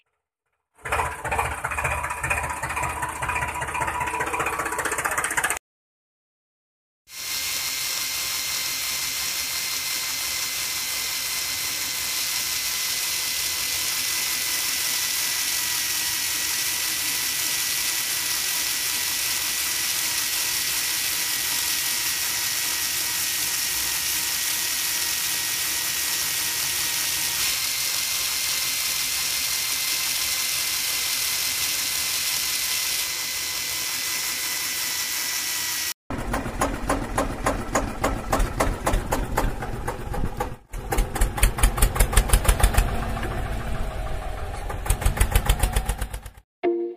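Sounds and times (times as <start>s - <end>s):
small motor whining: 7.1s - 36.0s
rhythmic pulsing motor: 7.2s - 39.4s.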